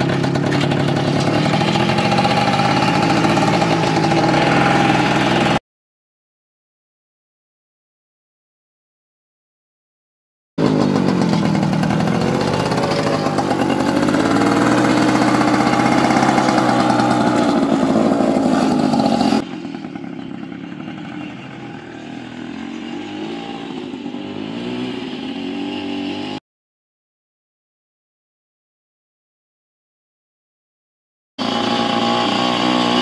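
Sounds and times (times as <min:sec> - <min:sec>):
two-stroke scooter engine running: 0:00.0 - 0:05.6, 0:10.6 - 0:26.4, 0:31.4 - 0:33.0.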